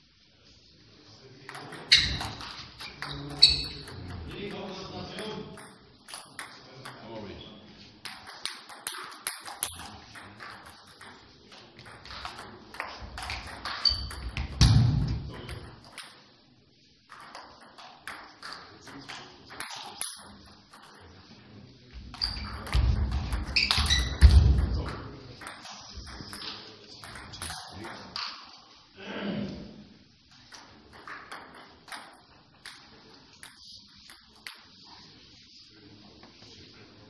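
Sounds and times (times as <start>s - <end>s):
high squeaks: 1.8s - 4.1s, 13.4s - 14.6s, 22.1s - 24.4s
table tennis ball clicking: 8.0s - 16.2s.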